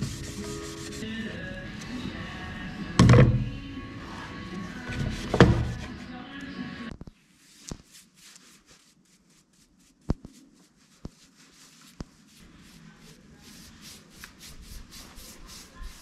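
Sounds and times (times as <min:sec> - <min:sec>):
brush swishing over wood: 0:00.0 - 0:01.2, 0:07.3 - 0:16.0.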